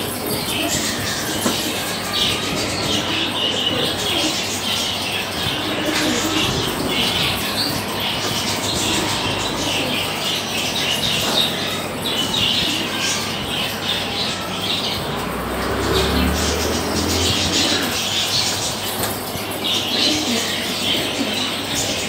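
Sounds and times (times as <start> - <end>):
pigeon squab squeaking: 0.0 - 14.5.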